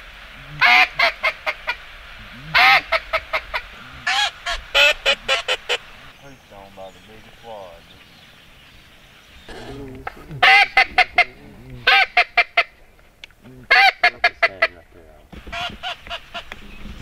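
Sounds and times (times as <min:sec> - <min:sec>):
duck call quacks: 0:00.5 - 0:05.9, 0:10.4 - 0:12.8, 0:13.7 - 0:14.8.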